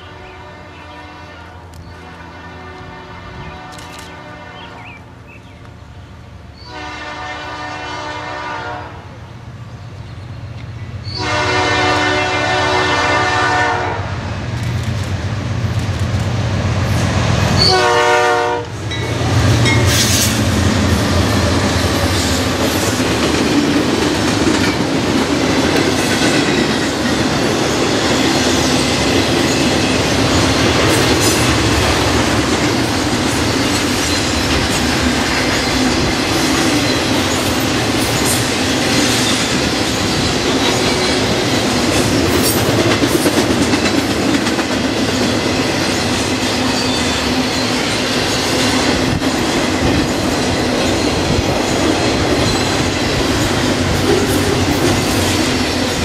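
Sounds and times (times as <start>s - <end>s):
diesel locomotives passing: 0.0s - 56.0s
train wheels clattering over rails: 18.8s - 56.0s.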